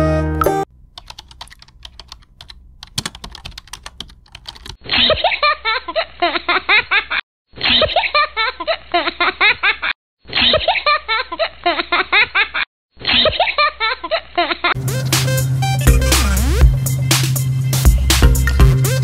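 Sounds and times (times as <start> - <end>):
computer keyboard typing: 0.8 - 4.8
loud laughter: 4.8 - 14.8.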